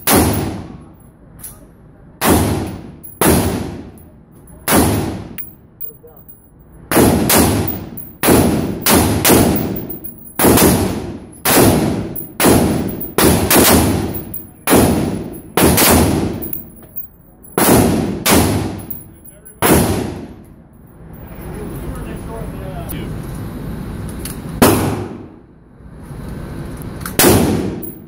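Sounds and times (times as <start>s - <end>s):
rifle shots echoing indoors: 0.0s - 0.8s, 6.9s - 16.6s, 17.6s - 19.0s, 27.2s - 28.0s.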